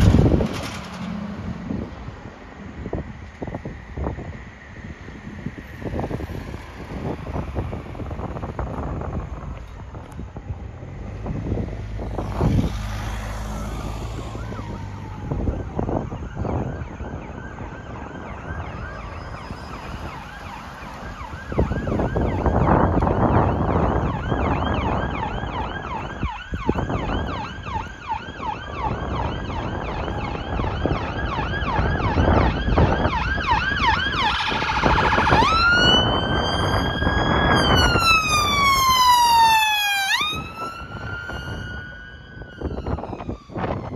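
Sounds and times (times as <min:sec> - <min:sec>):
passing car engine and tyres: 0:00.0 - 0:43.9
electronic siren yelp and wail: 0:12.2 - 0:43.9.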